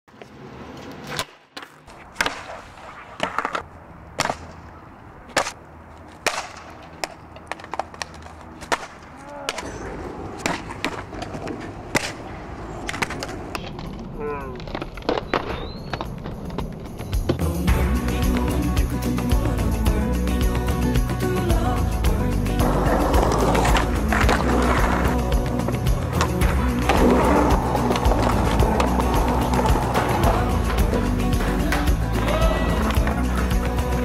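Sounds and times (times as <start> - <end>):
skateboards clacking on pavement: 0.1 - 19.3, 22.5 - 34.0
skateboard wheels rumbling: 6.0 - 17.5, 22.5 - 34.0.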